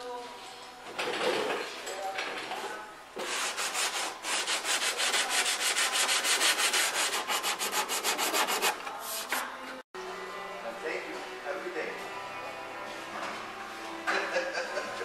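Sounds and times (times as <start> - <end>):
hand sanding metal and filler: 3.2 - 9.5.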